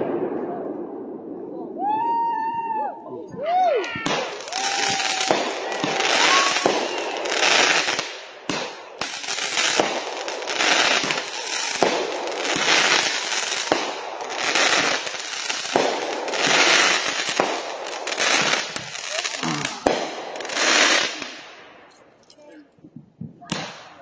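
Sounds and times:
fireworks bangs: 3.8s - 21.9s, 23.4s - 24.0s
crackling of bursting stars: 4.1s - 21.9s.

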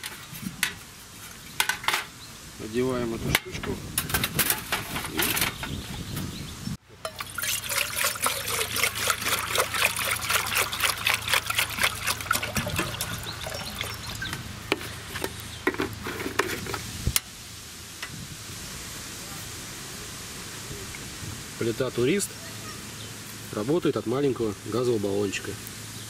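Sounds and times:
steady hiss: 0.0s - 8.7s, 13.9s - 26.0s
water pouring into a metal pot: 7.0s - 14.5s.

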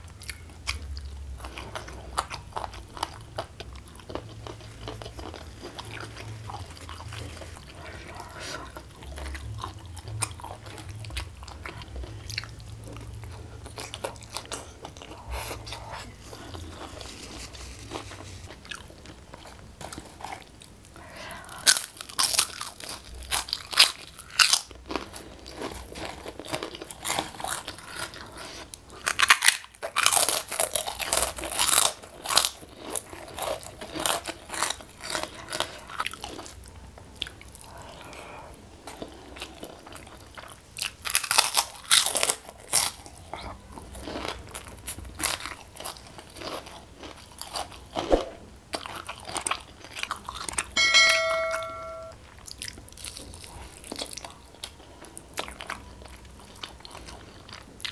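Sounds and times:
chewing food: 0.0s - 50.8s, 52.2s - 57.9s
crunching crackers: 0.0s - 50.8s, 52.4s - 57.9s
short chime: 50.8s - 52.2s.

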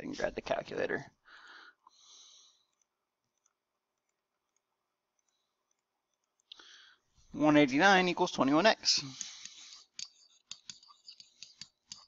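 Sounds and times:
computer mouse clicking: 2.7s - 6.6s.

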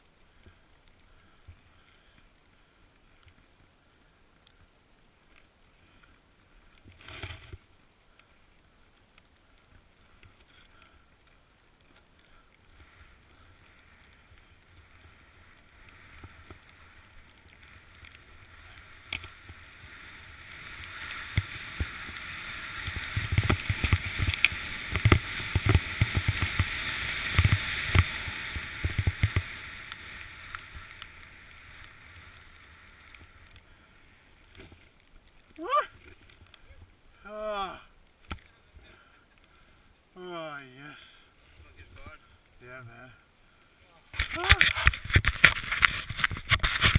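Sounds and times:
snowboard hissing through snow: 15.0s - 34.3s.

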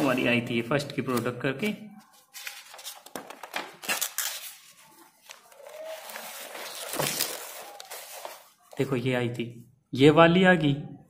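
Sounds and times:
notebook pages rustling: 1.6s - 8.8s.

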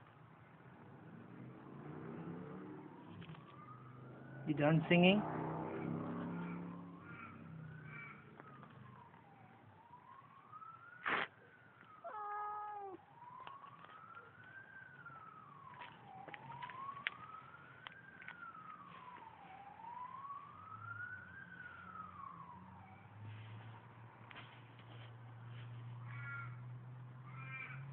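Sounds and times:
faint emergency siren wailing: 0.0s - 24.3s, 24.9s - 27.9s
cat meowing: 12.1s - 13.0s.

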